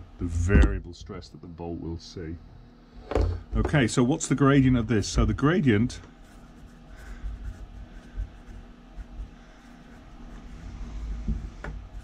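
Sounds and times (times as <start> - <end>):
marker scratching on paper: 6.2 - 10.6.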